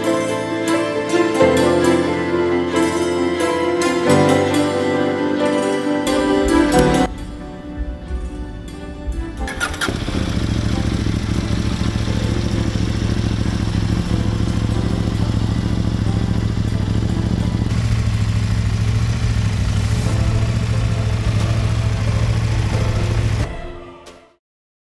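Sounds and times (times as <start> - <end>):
motorcycle engine idling: 7.0 - 23.5
motorcycle engine cranking: 9.4 - 23.5.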